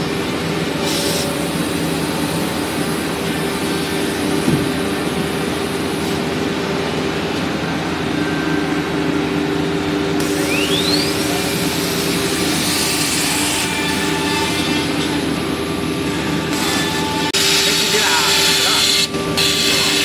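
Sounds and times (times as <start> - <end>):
rising whine: 0.0 - 13.3
router machine hum: 0.0 - 20.0.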